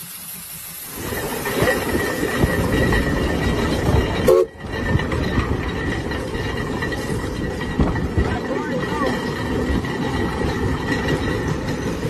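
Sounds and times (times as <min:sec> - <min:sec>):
steady steam hiss: 0:00.0 - 0:03.0
clanking gears: 0:01.0 - 0:12.0.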